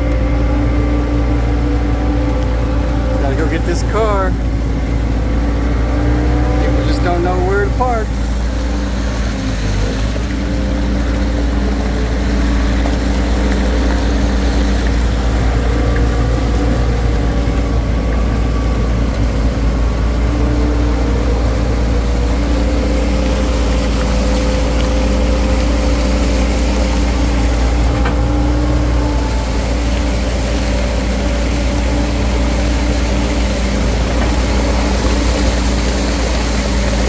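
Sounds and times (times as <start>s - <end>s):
loader engine running: 0.0s - 37.0s
tyres sloshing through water: 0.0s - 37.0s
wavering whine: 0.0s - 37.0s.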